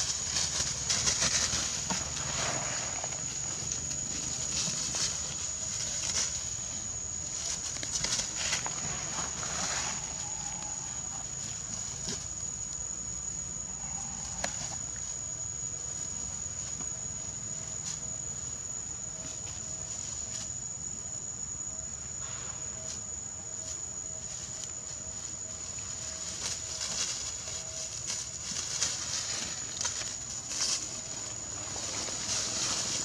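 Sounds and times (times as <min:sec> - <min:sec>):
rustles and clicks in dry leaves: 0:00.0 - 0:12.9, 0:22.2 - 0:33.0
high-pitched insect drone: 0:00.0 - 0:33.0.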